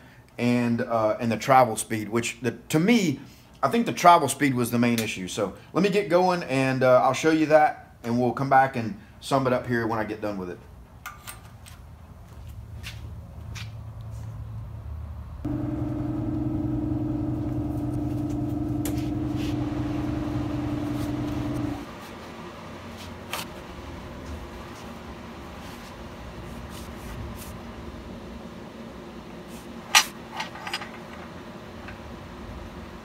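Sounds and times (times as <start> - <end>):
low workshop background: 0.0 - 33.0
machine hum: 15.4 - 22.9.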